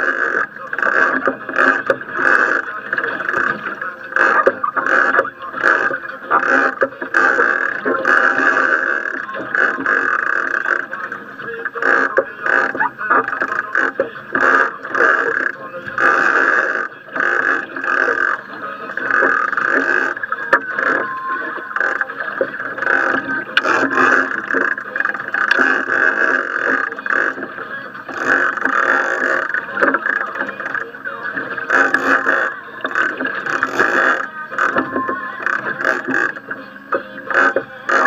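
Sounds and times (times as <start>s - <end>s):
wind and sea rushing: 0.0s - 38.0s.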